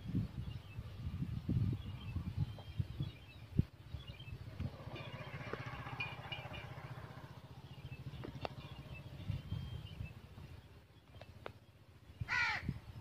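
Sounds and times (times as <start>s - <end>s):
birds chirping: 0.4s - 13.0s
engine putter: 4.5s - 10.2s.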